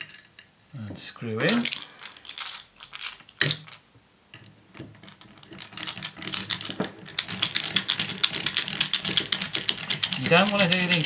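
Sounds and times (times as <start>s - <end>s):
screwdriver ratchet clicking: 5.5s - 11.0s.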